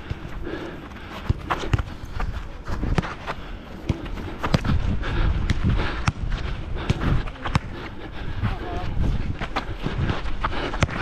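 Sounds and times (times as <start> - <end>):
low wind rumble: 0.0 - 11.0
running footsteps on artificial turf: 0.0 - 11.0
football being kicked: 1.2 - 1.9, 2.8 - 3.2, 3.8 - 4.8, 5.4 - 7.8, 10.7 - 11.0.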